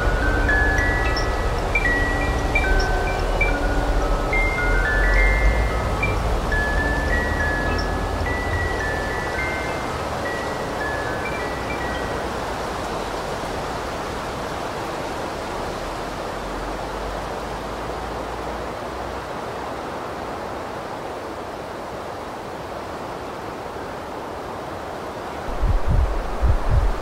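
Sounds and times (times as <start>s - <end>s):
high chime tones: 0.0s - 12.4s
steady rushing noise: 0.0s - 23.0s, 23.6s - 27.0s.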